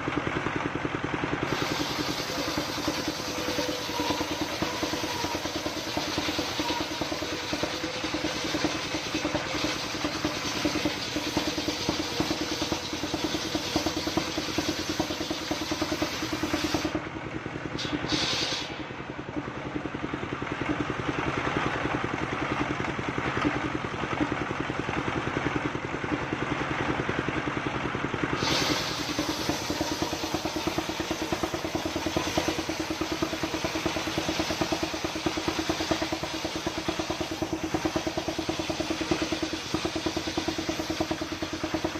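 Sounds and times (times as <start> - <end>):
diesel engine running: 0.0 - 41.9
circular saw cutting log: 1.4 - 17.0, 28.4 - 41.9.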